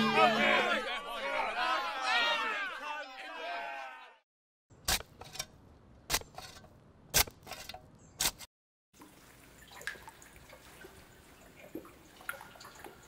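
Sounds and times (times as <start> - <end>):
faint dripping: 9.0 - 13.0
water drops plopping: 9.0 - 13.0.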